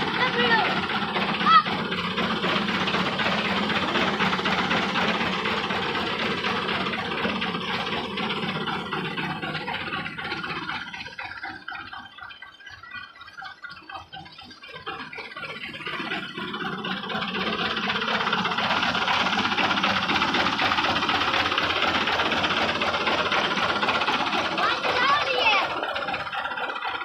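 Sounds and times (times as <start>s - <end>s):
diesel tractor engine running: 0.0s - 27.0s.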